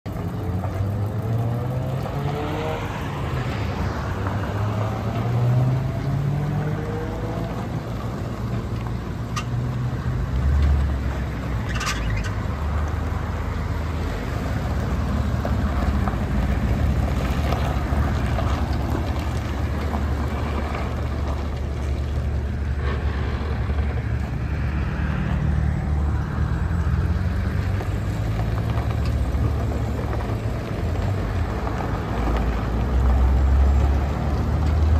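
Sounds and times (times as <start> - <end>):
truck engine revving: 9.9 - 34.9.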